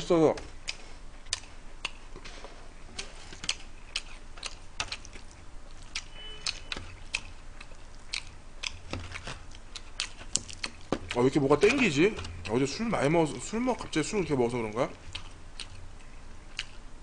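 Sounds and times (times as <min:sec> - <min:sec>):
chewing with sharp clicks: 0:00.6 - 0:02.1, 0:03.4 - 0:11.2, 0:15.0 - 0:16.8.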